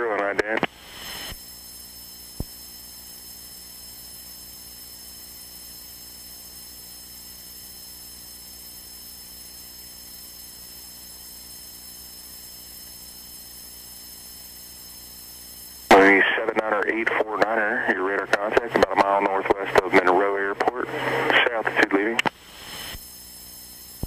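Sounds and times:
electrical hum with whine: 0:00.0 - 0:24.0
light hiss: 0:00.6 - 0:16.0, 0:22.2 - 0:24.0.

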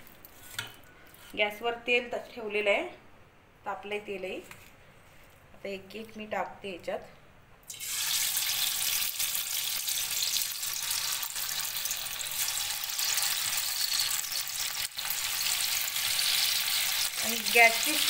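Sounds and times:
chicken deep-frying in oil: 0:07.7 - 0:18.0.

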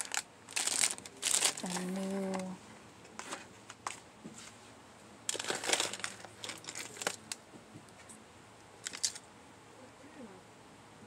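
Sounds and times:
plastic packaging crinkling: 0:00.0 - 0:02.6, 0:05.3 - 0:07.4, 0:08.8 - 0:09.2.

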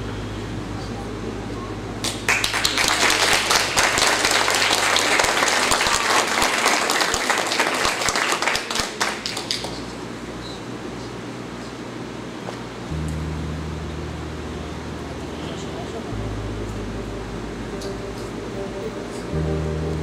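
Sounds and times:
audience applauding: 0:02.0 - 0:09.8
low hum: 0:12.8 - 0:20.0.

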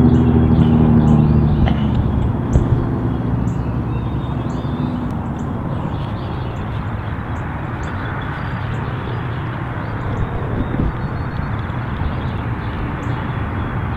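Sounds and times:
low rumble: 0:00.0 - 0:06.9.

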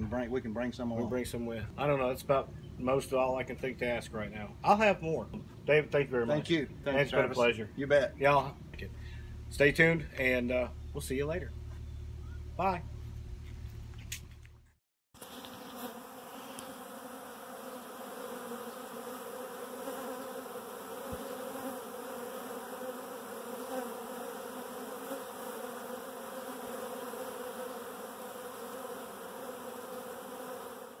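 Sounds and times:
honey bees buzzing: 0:15.2 - 0:31.0.

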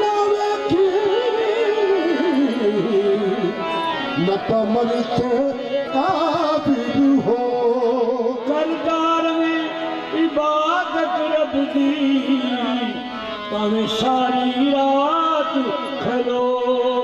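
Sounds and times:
wavering vocal melody: 0:00.0 - 0:17.0.

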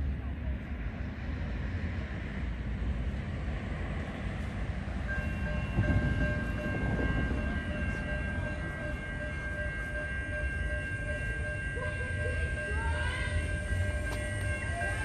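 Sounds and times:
train rumble: 0:00.0 - 0:15.0
high-pitched train horn: 0:06.4 - 0:15.0.

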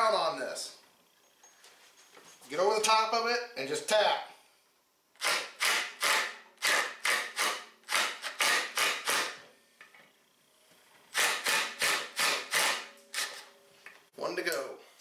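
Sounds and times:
impact driver hammering: 0:05.2 - 0:09.4, 0:11.1 - 0:13.4.

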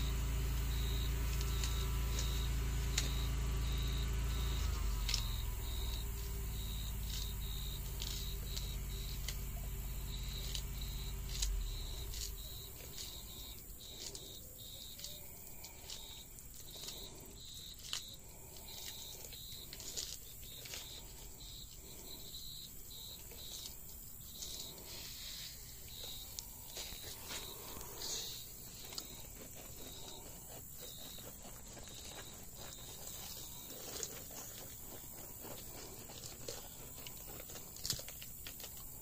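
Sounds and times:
low rumble with bump: 0:00.0 - 0:14.1
tortoise crunching lettuce: 0:00.0 - 0:39.0.

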